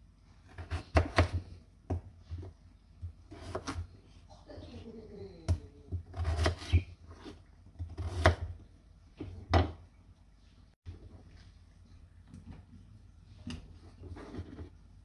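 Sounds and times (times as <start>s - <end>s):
knife chopping on wooden board: 0.6s - 2.5s, 3.3s - 3.8s, 5.9s - 8.5s.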